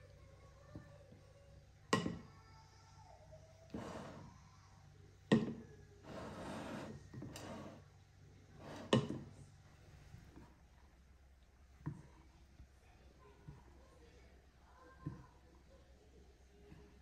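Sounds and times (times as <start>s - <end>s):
spoon scraping through couscous: 3.7s - 4.4s, 6.1s - 7.8s, 8.6s - 9.3s.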